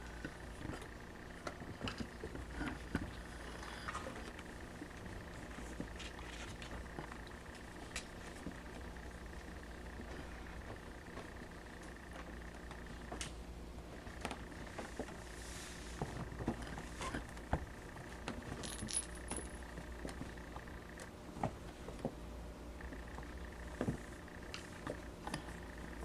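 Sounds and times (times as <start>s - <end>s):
kittens scuffling on carpet: 5.4s - 13.2s, 14.2s - 17.1s.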